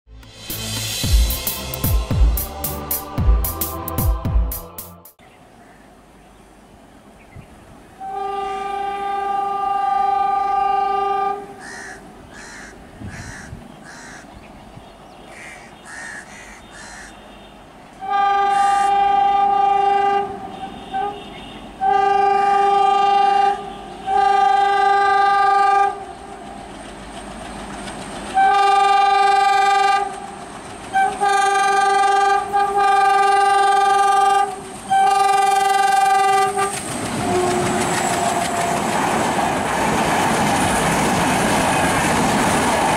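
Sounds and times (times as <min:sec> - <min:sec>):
train engine and wheel noise: 0:00.2 - 0:04.8, 0:06.0 - 0:42.9
locomotive air horn blasts: 0:08.0 - 0:11.6, 0:17.3 - 0:26.1, 0:28.4 - 0:30.2, 0:30.9 - 0:39.1.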